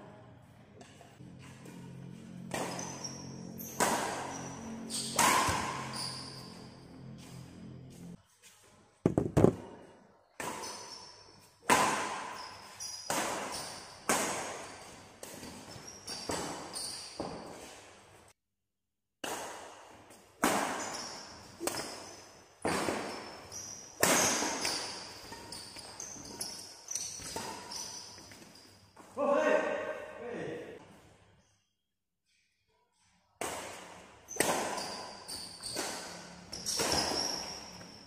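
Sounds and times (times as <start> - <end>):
racket hitting shuttlecock: 2.4 - 6.6, 11.6 - 17.7, 19.2 - 28.4, 33.4 - 37.7
shoes squeaking on court: 2.5 - 8.7, 9.4 - 11.6, 12.2 - 18.0, 20.7 - 29.2, 34.2 - 38.0.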